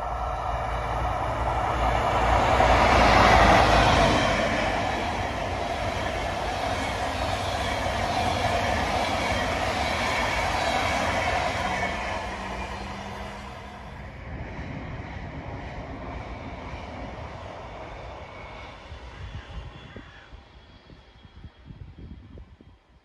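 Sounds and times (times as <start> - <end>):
train wheels rolling on rails: 0.0 - 14.1
train passing close by: 0.0 - 23.0.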